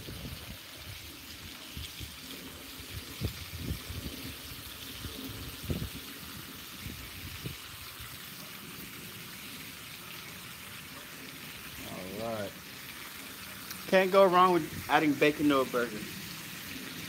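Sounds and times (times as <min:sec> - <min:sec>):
bacon sizzling on a griddle: 0:00.0 - 0:17.0.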